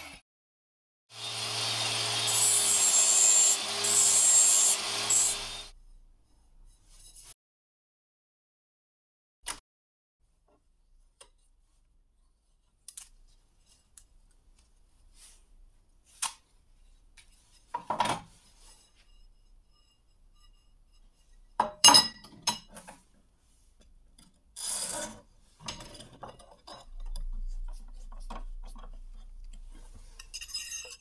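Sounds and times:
metal scraping rub: 0:18.3 - 0:21.6.

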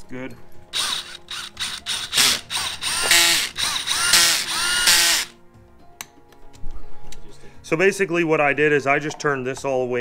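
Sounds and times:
cordless drill whining: 0:00.8 - 0:05.4.

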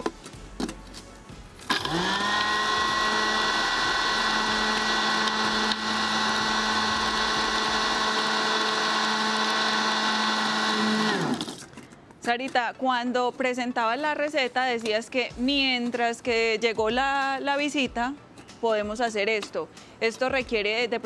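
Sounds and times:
food chopper motor whining: 0:01.6 - 0:11.7.

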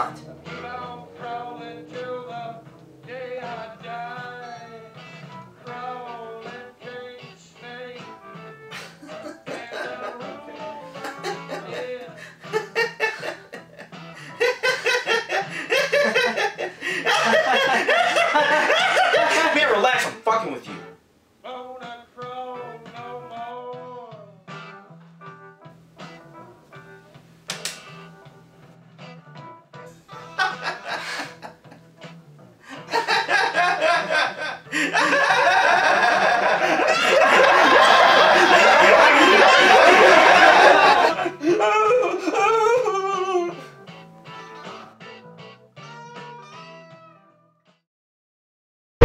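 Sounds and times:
men laughing: 0:08.7 - 0:20.0, 0:30.2 - 0:31.8, 0:32.7 - 0:43.7.

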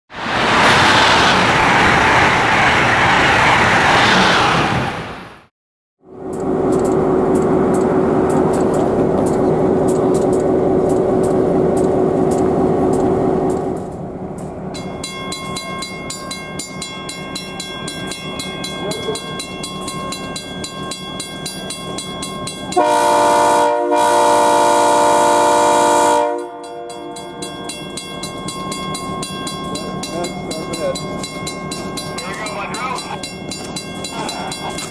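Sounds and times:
diesel locomotive engine: 0:00.1 - 0:34.9
crossing bell ringing: 0:14.6 - 0:23.4, 0:26.3 - 0:34.9
locomotive air horn: 0:22.7 - 0:27.2.

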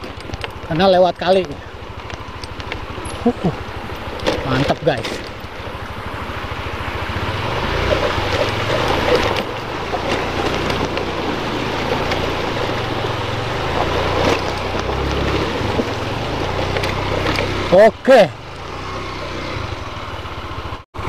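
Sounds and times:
motorcycle engine at low revs: 0:00.0 - 0:21.0
river water rushing: 0:01.8 - 0:17.8.

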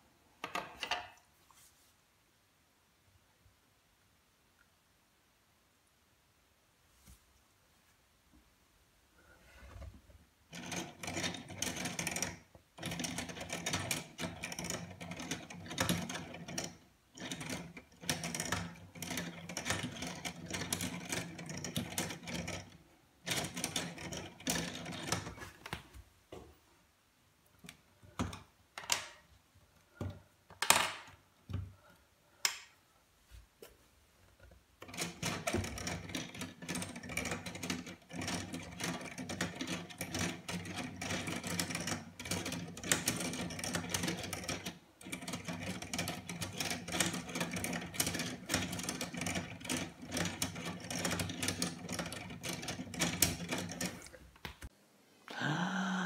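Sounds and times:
plastic gears clattering: 0:10.5 - 0:25.5, 0:34.8 - 0:54.2.

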